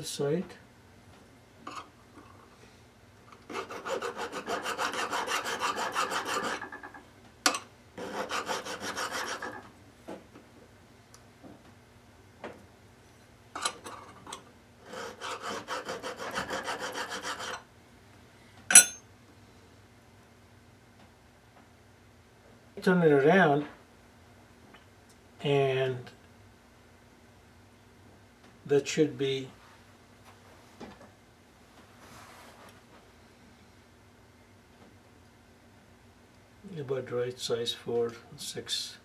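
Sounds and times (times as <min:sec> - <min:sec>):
hand file scraping metal: 0:03.4 - 0:07.0, 0:08.0 - 0:09.6, 0:14.8 - 0:17.6.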